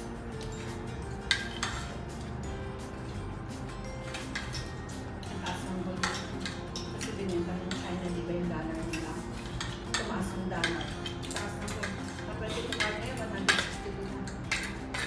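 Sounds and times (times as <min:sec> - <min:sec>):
cutlery clinking on plates: 0:00.4 - 0:02.4, 0:04.0 - 0:08.1, 0:08.7 - 0:15.0.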